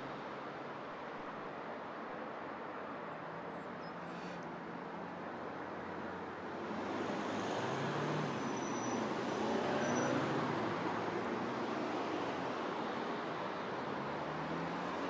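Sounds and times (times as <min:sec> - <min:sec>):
road traffic passing: 0:03.9 - 0:15.0.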